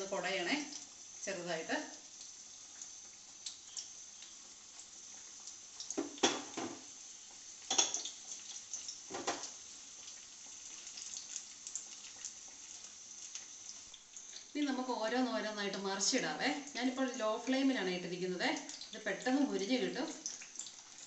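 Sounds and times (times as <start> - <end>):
battered food deep-frying in oil: 0.0 - 21.0.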